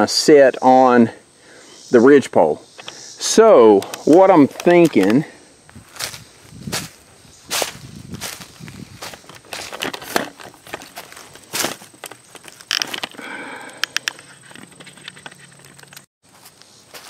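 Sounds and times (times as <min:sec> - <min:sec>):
twigs cracking and rustling: 0:03.8 - 0:16.1
footsteps crunching through dry leaves: 0:04.2 - 0:12.6, 0:16.2 - 0:17.0.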